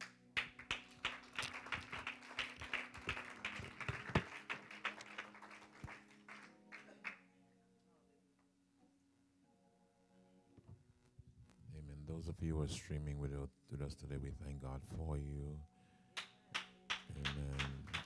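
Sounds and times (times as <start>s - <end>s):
congregation clapping: 0.0s - 7.3s, 16.2s - 18.0s
soft music with held notes: 0.0s - 18.0s.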